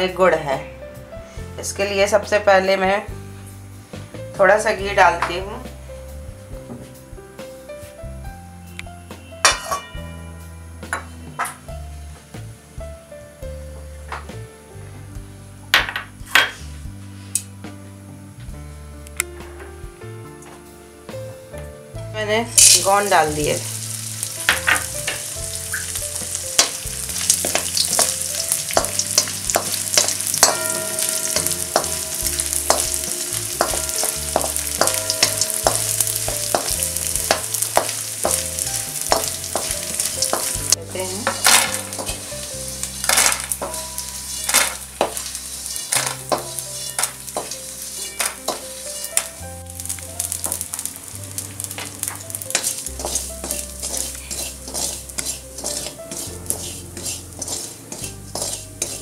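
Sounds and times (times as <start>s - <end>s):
gum sizzling and popping in hot oil: 22.5s - 59.0s
spatula scraping a pan: 24.0s - 50.8s, 51.7s - 59.0s.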